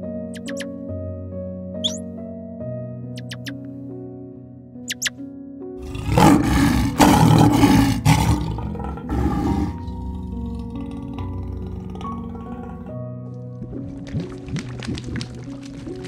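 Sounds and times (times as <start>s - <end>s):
background music: 0.0s - 16.0s
lion roaring: 5.8s - 13.0s.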